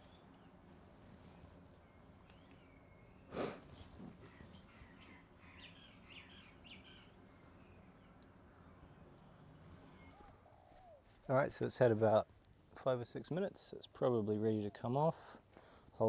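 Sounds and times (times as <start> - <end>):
faint high bird chirps: 0.0 - 11.4.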